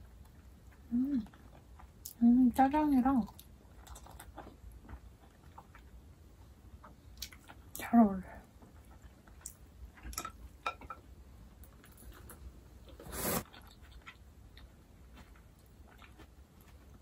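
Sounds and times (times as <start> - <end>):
mouth chewing smacks and clicks: 3.3 - 6.0, 6.8 - 7.8
noodle slurp: 13.0 - 13.5.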